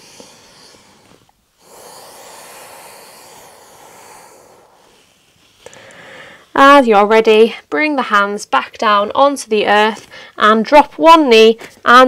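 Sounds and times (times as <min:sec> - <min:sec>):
long exhale: 0:00.0 - 0:06.5
person breathing: 0:00.0 - 0:06.6, 0:10.0 - 0:10.4.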